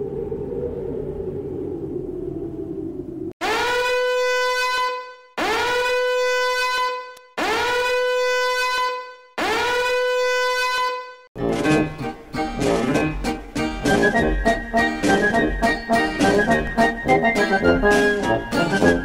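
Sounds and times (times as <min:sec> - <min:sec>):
swooping horn-like warning tone: 0:03.4 - 0:11.3.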